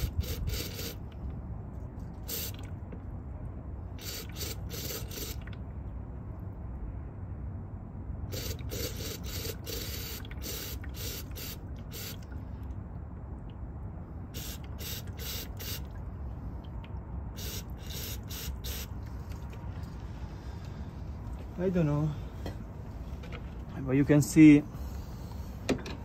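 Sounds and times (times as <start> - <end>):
aerosol spray hissing bursts: 2.3 - 2.6, 8.4 - 12.2, 14.4 - 15.8, 17.4 - 18.9.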